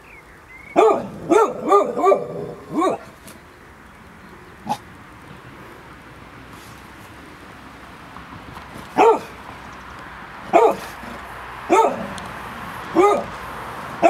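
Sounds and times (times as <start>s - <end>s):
dog barking: 0.8s - 3.2s, 9.0s - 9.4s, 10.5s - 12.2s, 12.9s - 13.4s.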